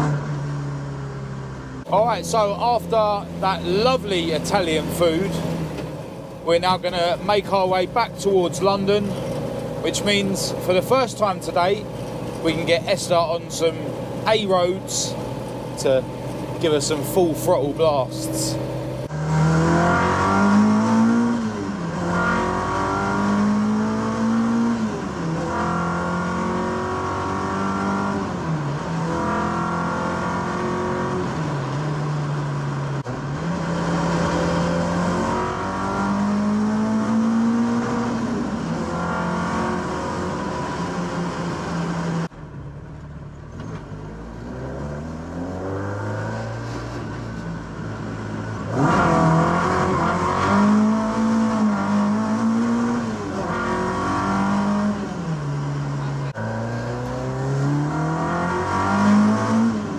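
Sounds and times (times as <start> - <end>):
car engine accelerating hard: 0.0 - 42.3, 43.5 - 59.9.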